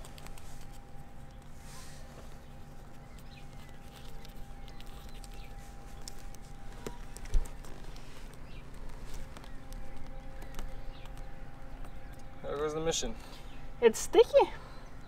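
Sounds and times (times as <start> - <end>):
hands working sticky tape: 0.0 - 1.6, 2.2 - 11.2
faint steady hum: 0.0 - 15.0
small clicks and taps: 3.2 - 12.3.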